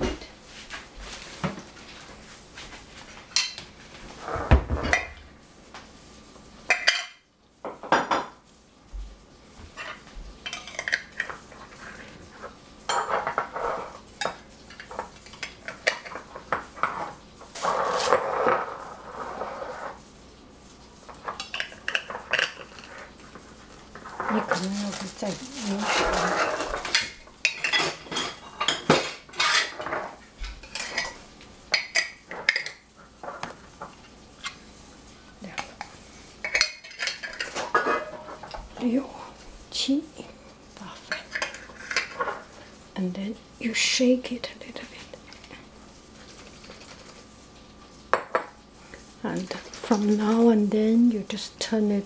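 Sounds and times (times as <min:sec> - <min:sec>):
glass jars clinking on tiles: 0:12.9 - 0:15.0, 0:24.3 - 0:30.0
scraping: 0:24.0 - 0:27.2.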